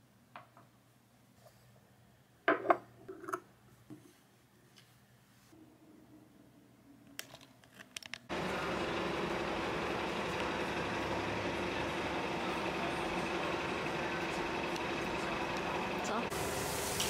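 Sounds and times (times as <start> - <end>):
low engine hum: 8.3 - 17.0
street traffic: 8.3 - 17.0.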